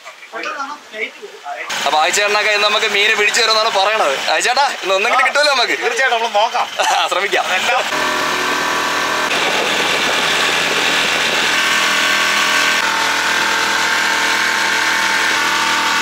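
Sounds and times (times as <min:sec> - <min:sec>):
boat engine running: 0:01.7 - 0:16.0
wind: 0:06.6 - 0:15.8.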